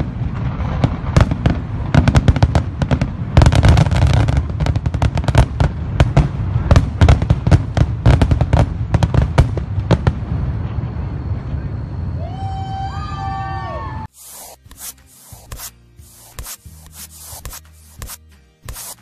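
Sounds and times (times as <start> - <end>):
fireworks bangs and crackles: 0.0 - 12.1.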